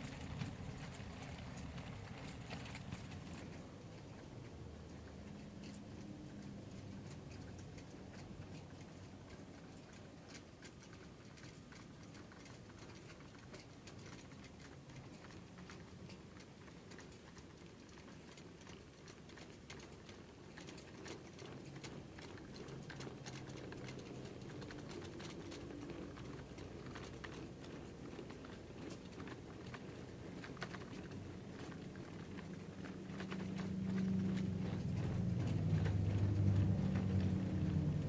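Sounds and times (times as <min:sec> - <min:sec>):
low steady hum: 0:00.0 - 0:06.8, 0:22.6 - 0:38.0
model train wheels clicking: 0:00.0 - 0:38.0.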